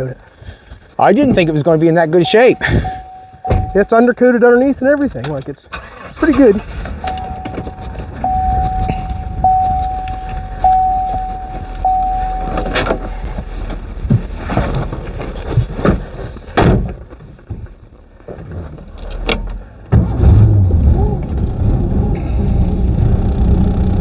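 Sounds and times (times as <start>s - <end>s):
car warning chime dinging: 2.2s - 4.5s, 7.0s - 13.3s
car door shutting: 2.4s - 4.0s, 6.9s - 13.3s
knocks and thumps: 2.7s - 3.8s, 6.8s - 17.8s
low steady rumble: 6.5s - 16.4s.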